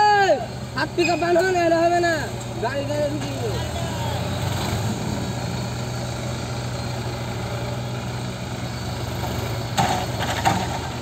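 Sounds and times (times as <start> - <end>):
diesel engines droning: 0.0 - 11.0.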